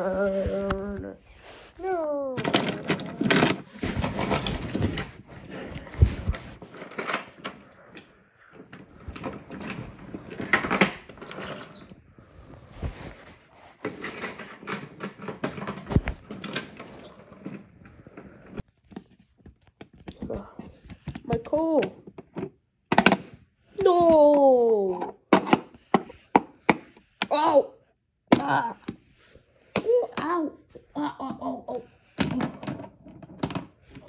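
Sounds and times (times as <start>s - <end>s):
rustling and clatter of handling: 0.0s - 24.3s.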